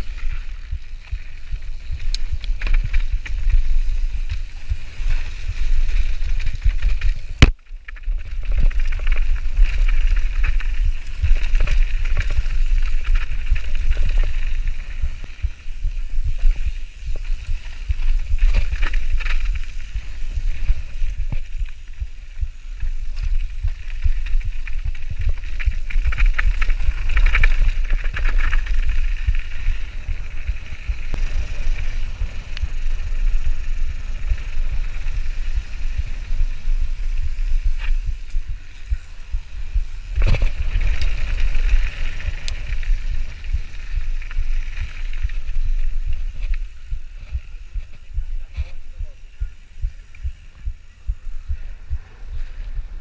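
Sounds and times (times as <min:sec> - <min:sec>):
bike tyre and drivetrain noise: 0:00.0 - 0:53.0
wind buffeting microphone: 0:00.0 - 0:53.0.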